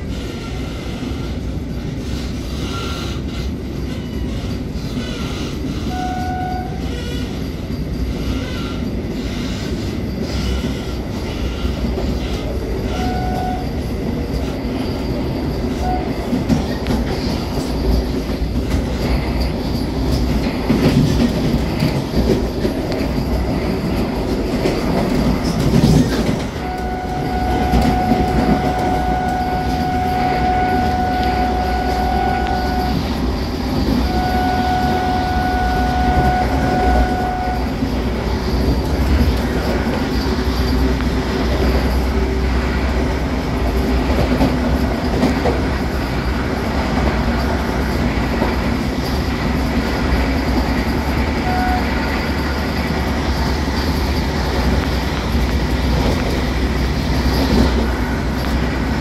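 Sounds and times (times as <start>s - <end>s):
train rumble: 0.0s - 59.0s
wheels clattering on rails: 0.0s - 59.0s
train horn: 5.0s - 7.4s, 10.5s - 13.8s, 15.8s - 16.3s, 26.4s - 38.1s, 51.4s - 52.5s.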